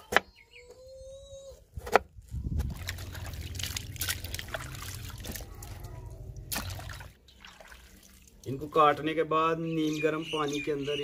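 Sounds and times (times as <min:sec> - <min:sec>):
water sloshing and trickling: 0:02.2 - 0:09.2.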